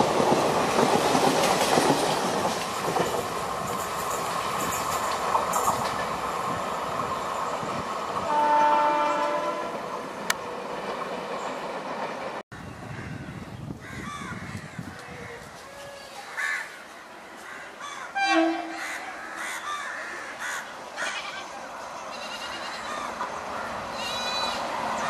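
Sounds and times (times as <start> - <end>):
low rumble of passing trains: 0.0 - 25.0
crows cawing: 12.6 - 15.4, 16.2 - 21.4, 22.2 - 24.6.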